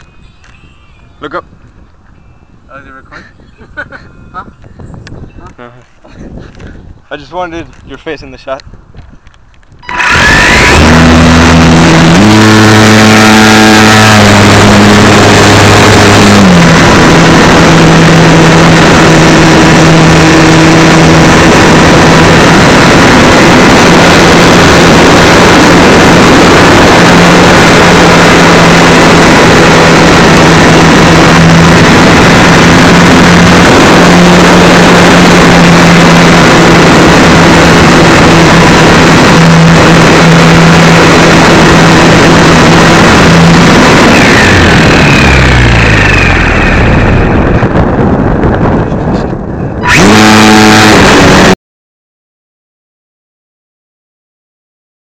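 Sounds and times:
wind and propeller rush: 0.0s - 51.6s
electric motor whine: 9.8s - 48.8s, 49.8s - 51.6s.

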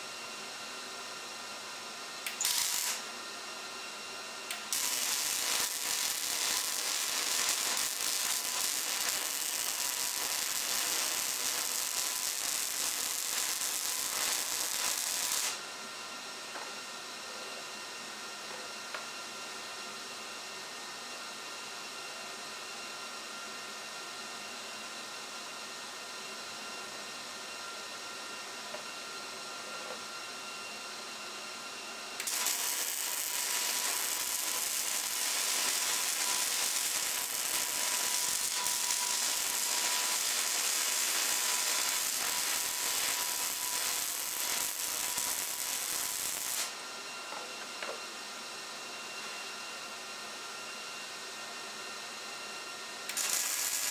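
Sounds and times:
welding arc crackling: 2.3s - 3.0s, 4.5s - 15.6s, 32.2s - 46.8s, 53.1s - 53.9s.

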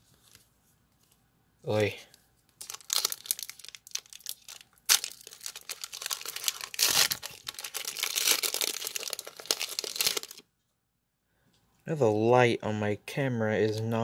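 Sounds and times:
trading cards rustling and clicking: 2.5s - 10.4s.

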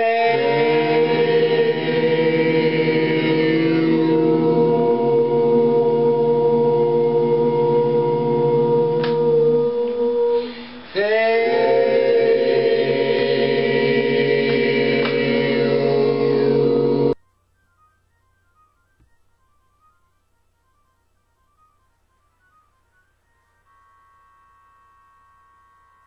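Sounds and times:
low chanted tone: 0.0s - 17.2s.

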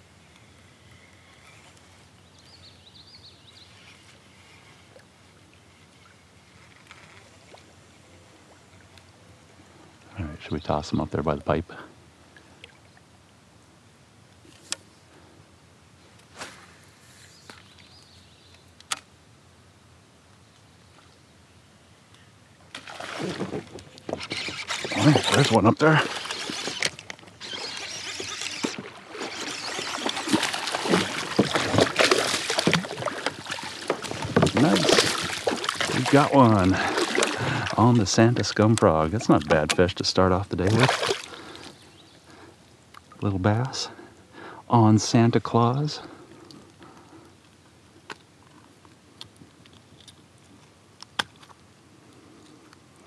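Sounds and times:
fish splashing at water surface: 24.3s - 37.8s, 40.7s - 41.6s.

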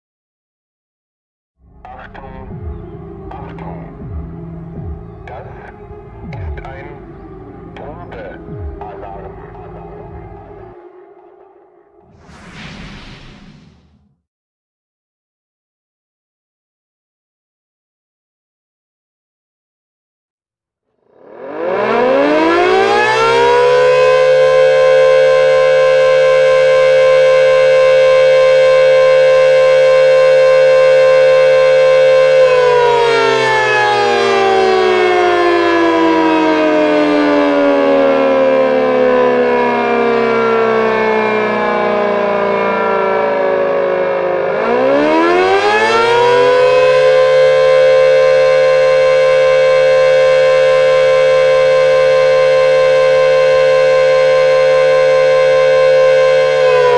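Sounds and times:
electromechanical siren wailing: 7.2s - 14.1s, 21.1s - 56.9s.

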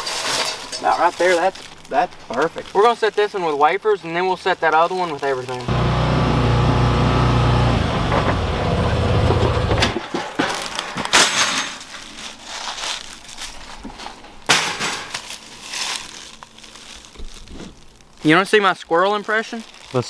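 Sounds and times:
footsteps crunching through dry leaves: 0.0s - 3.5s, 12.0s - 14.2s, 15.0s - 18.3s, 18.9s - 20.0s
vehicle engine running: 5.7s - 10.0s.

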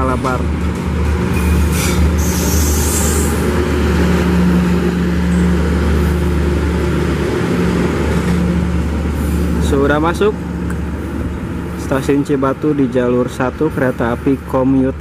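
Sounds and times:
diesel train engine drone: 0.0s - 15.0s
train rolling noise: 0.0s - 15.0s
high hiss of air: 1.8s - 3.4s.

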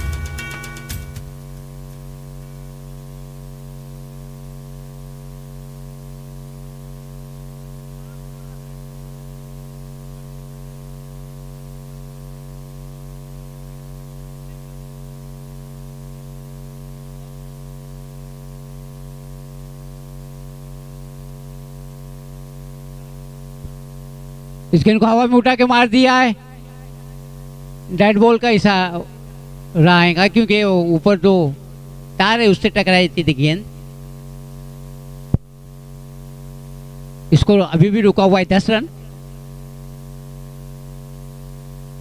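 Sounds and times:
background music: 0.0s - 1.4s
electrical mains hum: 0.0s - 42.0s.

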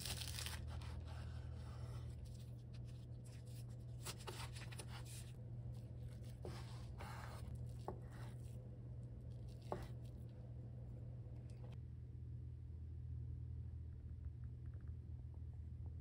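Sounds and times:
low steady hum: 0.0s - 16.0s
knife cutting on wooden board: 6.1s - 8.5s.

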